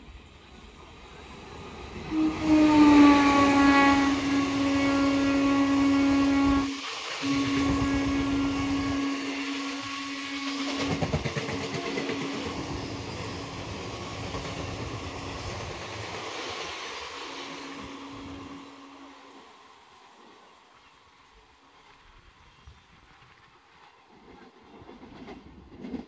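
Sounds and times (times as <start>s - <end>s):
steady droning tone: 1.9s - 14.0s, 16.8s - 20.0s
train wheels clattering over rail joints: 10.3s - 16.9s.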